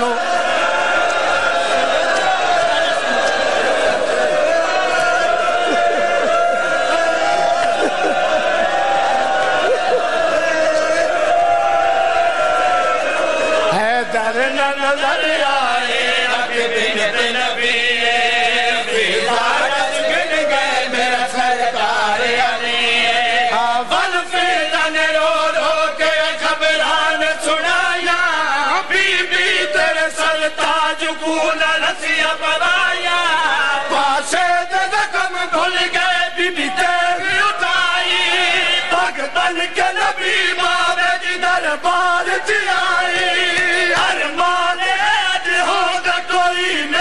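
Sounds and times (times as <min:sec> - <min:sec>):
man chanting: 0:13.7 - 0:21.6.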